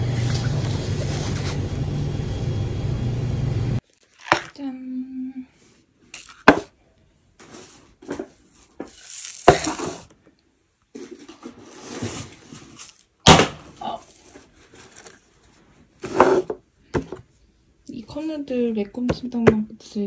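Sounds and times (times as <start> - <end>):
rustling noise: 7.4 - 10.1, 10.9 - 13.0, 14.0 - 16.5.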